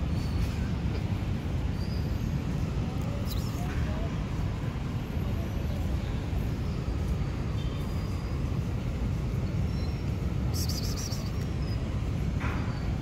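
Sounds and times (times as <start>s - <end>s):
faint high chirps: 9.6s - 11.9s.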